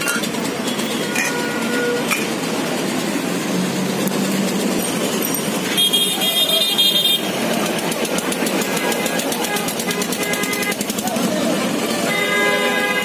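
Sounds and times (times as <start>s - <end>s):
street traffic din: 0.0s - 13.0s
vehicle horn: 0.7s - 2.1s, 5.7s - 7.4s, 8.6s - 10.9s, 11.9s - 13.0s.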